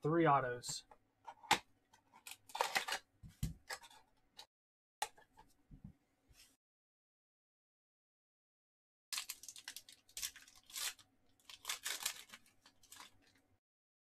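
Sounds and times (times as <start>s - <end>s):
foil wrapper tearing and crinkling: 2.3s - 3.0s, 9.1s - 13.4s.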